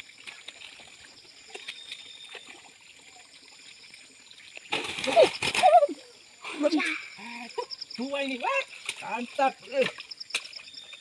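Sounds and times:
stream water trickling: 0:00.0 - 0:11.0.

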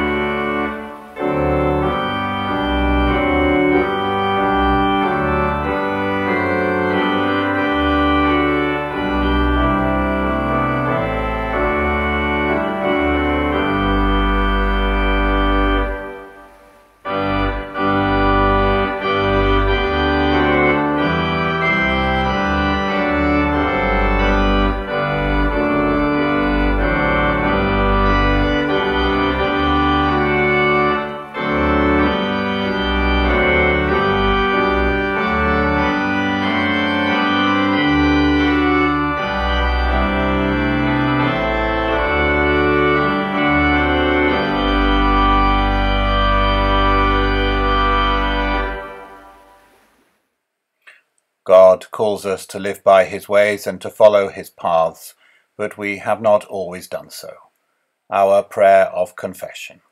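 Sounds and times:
organ playing hymn chords: 0:00.0 - 0:50.0.

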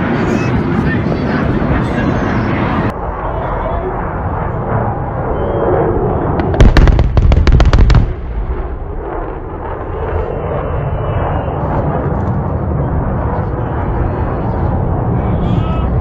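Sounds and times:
low rumble: 0:00.0 - 0:16.0
fireball explosion: 0:06.3 - 0:10.2
pyrotechnic bangs: 0:06.4 - 0:09.8.

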